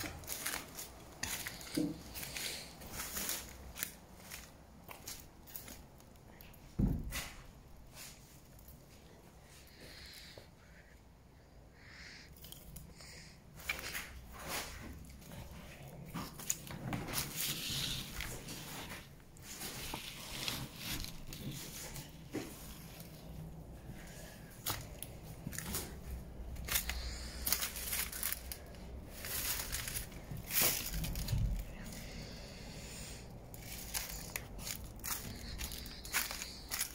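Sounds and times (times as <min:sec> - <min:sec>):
footsteps on dry leaves: 0:00.0 - 0:05.8, 0:24.6 - 0:36.9.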